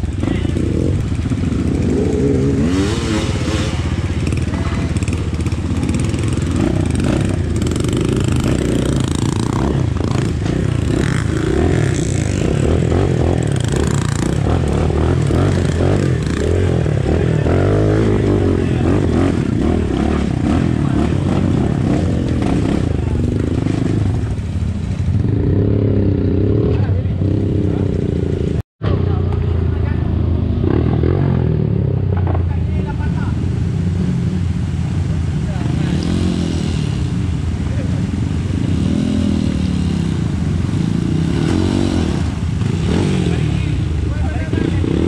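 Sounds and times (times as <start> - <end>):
dirt bike engine running: 0.0 - 25.8.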